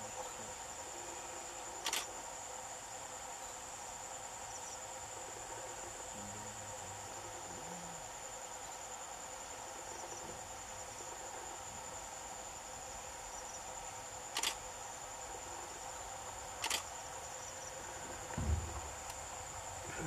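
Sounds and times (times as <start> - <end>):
crickets trilling: 0.0 - 20.0
low bump: 18.0 - 20.0.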